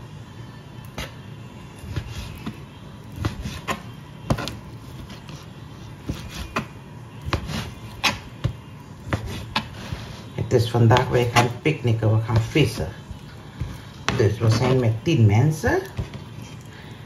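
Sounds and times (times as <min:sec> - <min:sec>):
knife cutting on cutting board: 0:03.2 - 0:05.4, 0:06.0 - 0:08.3, 0:09.1 - 0:10.3.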